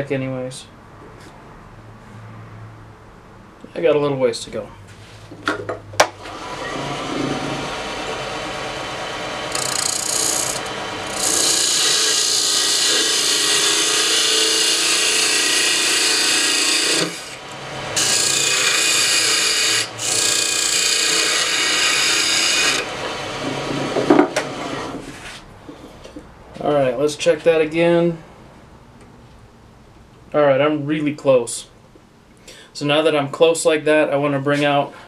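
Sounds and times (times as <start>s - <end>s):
lathe tool scraping wood: 6.2s - 25.4s.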